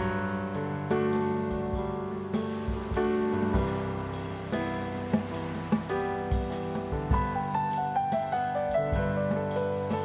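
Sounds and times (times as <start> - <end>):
acoustic guitar playing: 0.0 - 10.0.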